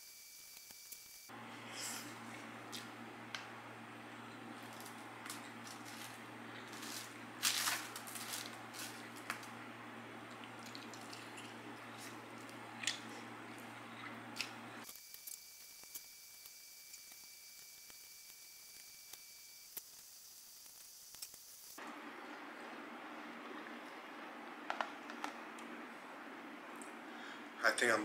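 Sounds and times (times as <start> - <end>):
background hum and hiss: 1.3 - 17.1, 21.8 - 28.0
chewing: 10.3 - 14.6.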